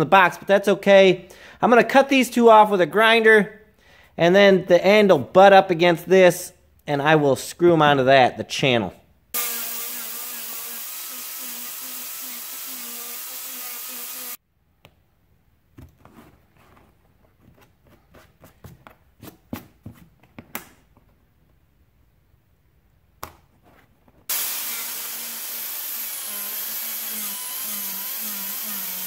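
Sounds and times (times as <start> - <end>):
air cut-off tool grinding: 9.4 - 14.4, 24.3 - 29.0.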